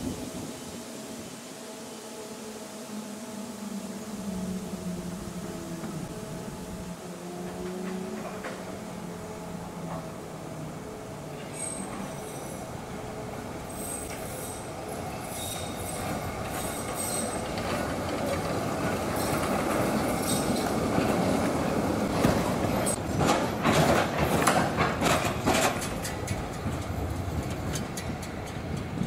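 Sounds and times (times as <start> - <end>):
tram passing: 0.0 - 29.0
high wheel squeal: 13.7 - 17.6
wheels clacking over track joints: 15.4 - 29.0.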